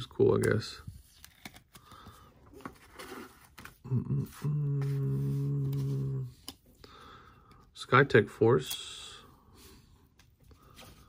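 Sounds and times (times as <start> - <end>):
short vocal sounds: 3.8 - 6.4
man humming low note: 3.9 - 6.4.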